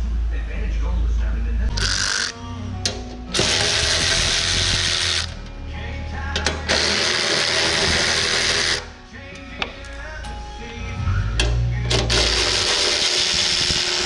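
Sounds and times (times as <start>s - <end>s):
power ratchet running: 1.7s - 2.4s, 3.3s - 5.4s, 6.4s - 8.9s, 11.9s - 14.0s.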